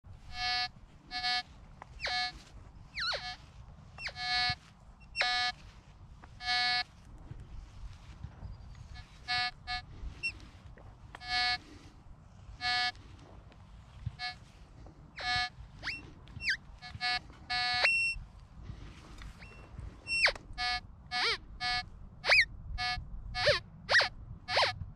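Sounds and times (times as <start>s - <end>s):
metal detector buzzy beeps: 0.1s - 6.9s, 8.6s - 10.5s, 11.1s - 11.8s, 12.6s - 13.1s, 14.0s - 14.5s, 15.2s - 18.2s, 19.3s - 24.8s.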